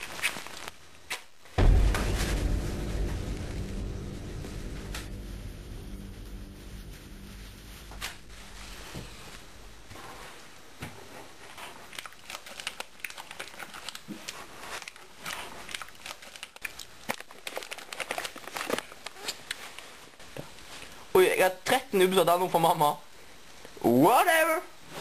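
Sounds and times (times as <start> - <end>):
plastic snack bag crinkling: 0.0 - 1.6, 11.4 - 20.9
low hum: 1.6 - 10.6.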